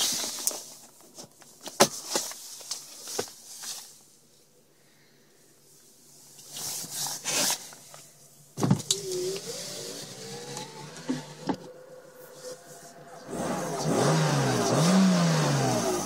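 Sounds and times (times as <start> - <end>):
shuffling and handling noise: 0.0 - 4.5, 5.7 - 9.6
electric motor whine: 9.0 - 16.0.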